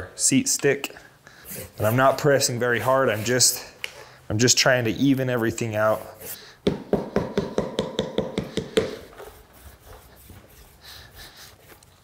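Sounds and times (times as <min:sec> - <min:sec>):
tapping on leather: 0:06.6 - 0:09.1.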